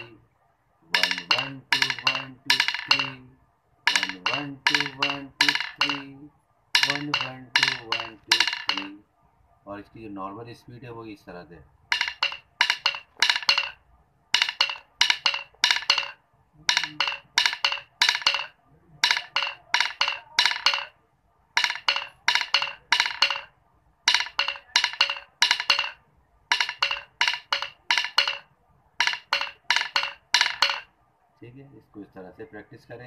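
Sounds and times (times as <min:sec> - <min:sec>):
drumsticks tapping on tile floor: 0:00.9 - 0:03.3, 0:03.9 - 0:06.2, 0:06.8 - 0:09.0, 0:11.9 - 0:13.8, 0:14.4 - 0:21.0, 0:21.6 - 0:30.9.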